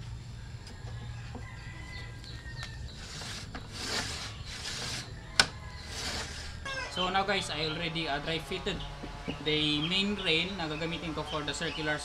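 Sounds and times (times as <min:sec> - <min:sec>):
tools scraping on workbench: 0:02.9 - 0:06.7.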